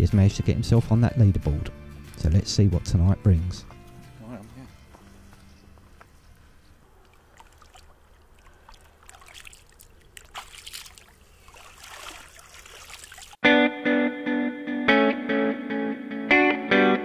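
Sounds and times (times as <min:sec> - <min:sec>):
guitar music: 0:00.0 - 0:05.8, 0:13.4 - 0:17.0
faint trickling water: 0:06.3 - 0:13.4.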